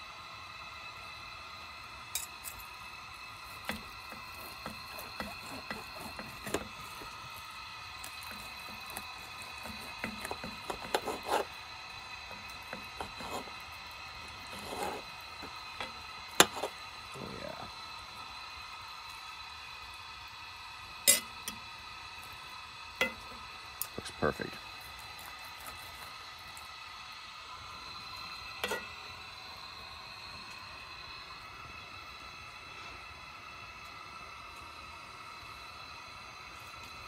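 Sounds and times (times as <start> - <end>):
steady high whine: 0.0 - 37.0
cutlery clinking on metal pot: 21.1 - 21.3.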